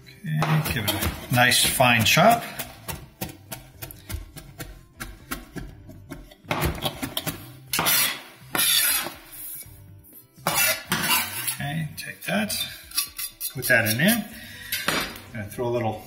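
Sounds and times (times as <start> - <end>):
knife chopping on cutting board: 0.4 - 9.1
knife scraping cutting board: 7.7 - 9.7, 10.4 - 11.7.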